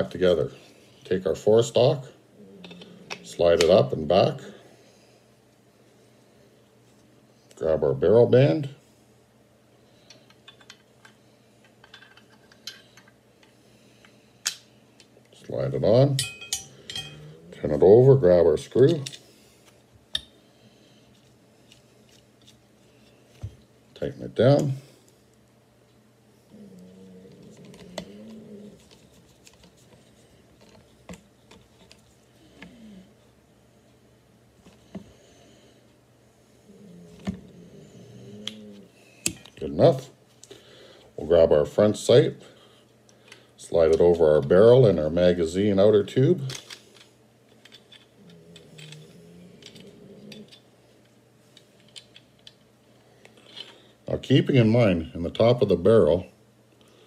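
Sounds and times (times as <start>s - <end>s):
low wavering hum: 15.4s - 19.6s.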